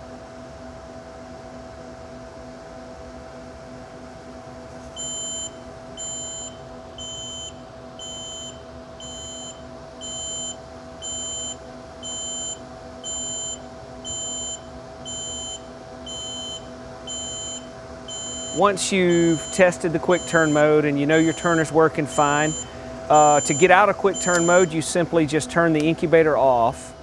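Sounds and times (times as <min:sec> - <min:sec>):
incubator humming: 0:00.0 - 0:27.0
high electronic beep: 0:05.0 - 0:19.6, 0:20.2 - 0:24.7.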